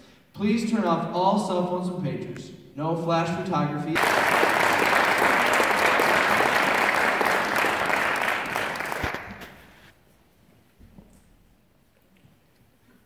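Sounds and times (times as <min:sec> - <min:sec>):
audience applauding: 0:04.0 - 0:09.9.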